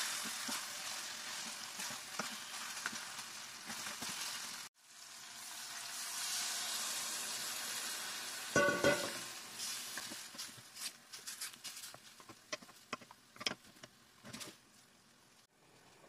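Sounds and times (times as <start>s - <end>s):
chicken sizzling in a frying pan: 0.0s - 10.9s
clank against pan: 8.6s - 9.2s.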